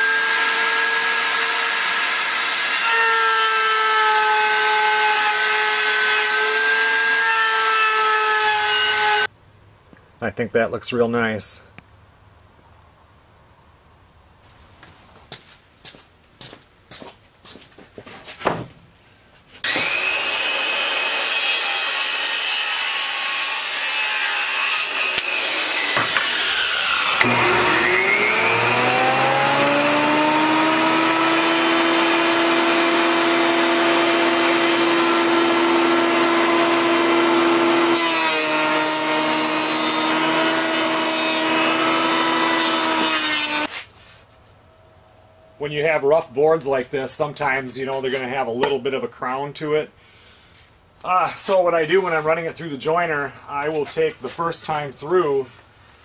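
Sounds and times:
jointer planing wood: 0:00.0 - 0:09.3, 0:19.6 - 0:43.7.

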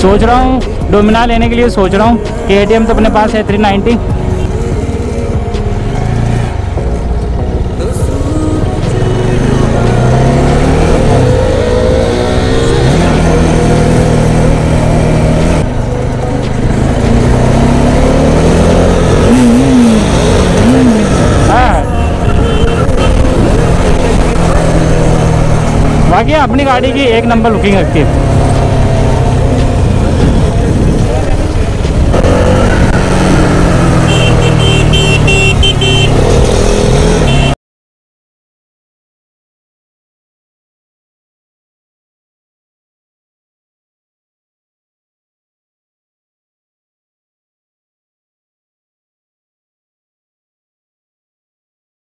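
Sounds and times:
wind and road noise: 0:00.0 - 0:37.6
motorcycle engine accelerating: 0:02.5 - 0:37.6
wind noise: 0:29.8 - 0:33.4
horn short toots: 0:33.9 - 0:37.6.

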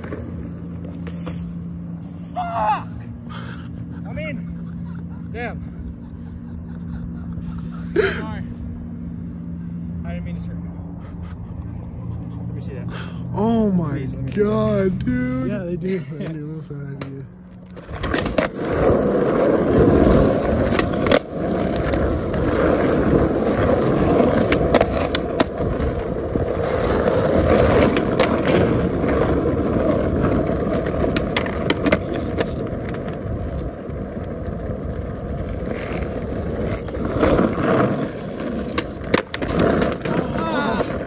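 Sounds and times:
skateboard clacking on ground: 0:00.0 - 0:01.7, 0:16.2 - 0:41.0
skateboard wheels rolling on asphalt: 0:00.0 - 0:05.0, 0:13.4 - 0:41.0.

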